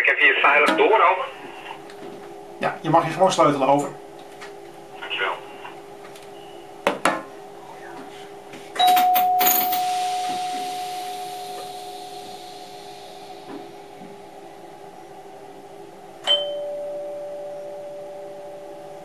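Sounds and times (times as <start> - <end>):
bell ringing: 8.8 - 14.0
steady train hum: 9.4 - 16.2.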